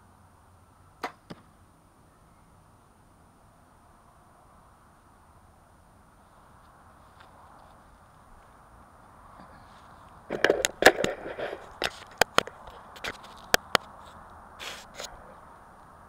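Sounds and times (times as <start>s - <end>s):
camera handling knocks and clicks: 10.3s - 13.9s.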